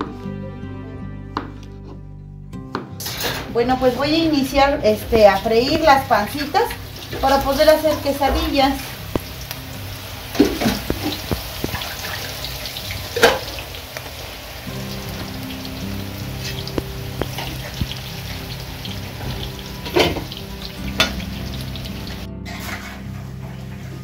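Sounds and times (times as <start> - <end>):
background music with held notes: 0.0 - 24.0
mushrooms sizzling in a pan: 5.0 - 22.3.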